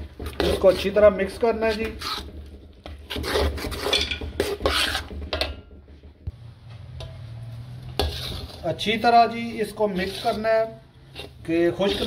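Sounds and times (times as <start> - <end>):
metal spatula scraping a pan: 0.0 - 5.8, 7.0 - 12.0
low steady hum: 5.4 - 8.6.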